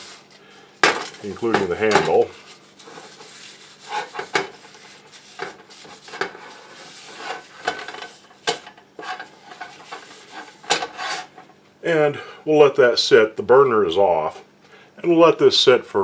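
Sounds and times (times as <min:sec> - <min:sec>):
paper towel rubbing skillet: 0:00.0 - 0:00.4, 0:01.2 - 0:11.4.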